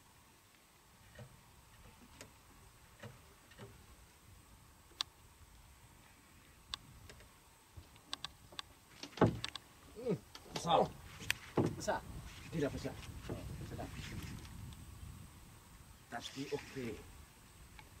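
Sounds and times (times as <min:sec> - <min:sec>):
loud short thump: 0:09.1 - 0:09.4.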